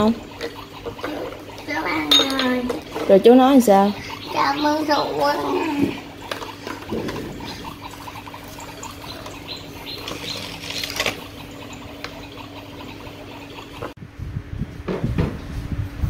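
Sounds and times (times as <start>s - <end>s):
water trickling from faucet: 0.0s - 14.0s.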